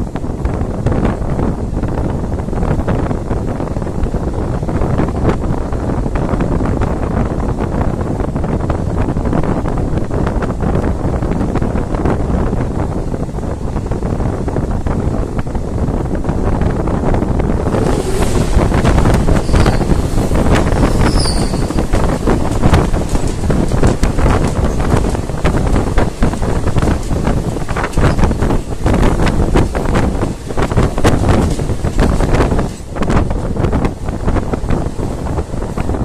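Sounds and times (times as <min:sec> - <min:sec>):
wind buffeting microphone: 0:00.0 - 0:36.0
train rushing past: 0:13.6 - 0:36.0
high-pitched squeals: 0:17.6 - 0:22.3.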